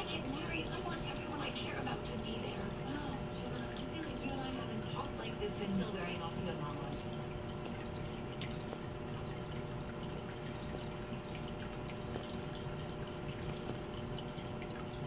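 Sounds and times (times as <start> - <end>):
aquarium water trickling: 0.0 - 15.0
faint motor hum: 0.0 - 15.0.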